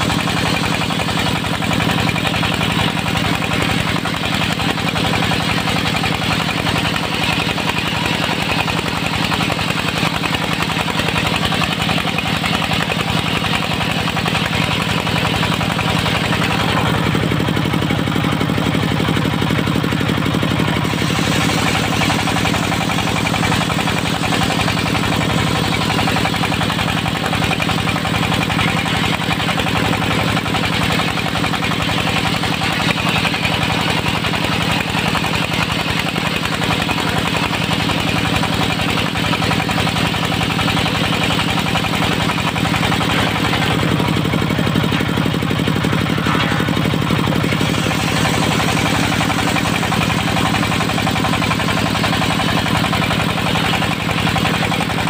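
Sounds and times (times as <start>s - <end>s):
diesel engine running: 0.0s - 55.0s
saw blade cutting wood: 20.6s - 55.0s.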